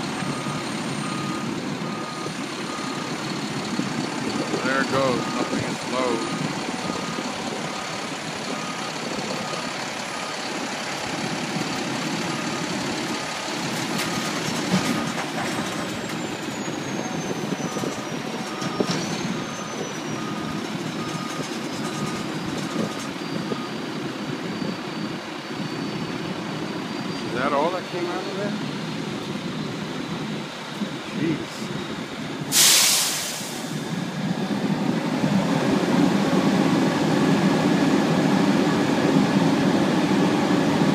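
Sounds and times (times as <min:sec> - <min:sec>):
reversing alarm beeping: 0:00.0 - 0:10.7, 0:16.2 - 0:28.6
diesel engines running: 0:00.0 - 0:40.9.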